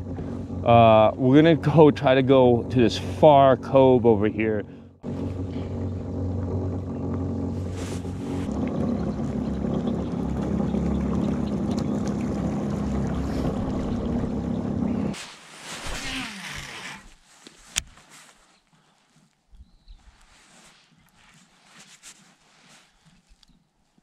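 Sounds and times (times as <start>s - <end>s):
electric trolling motor running: 0.0s - 15.2s.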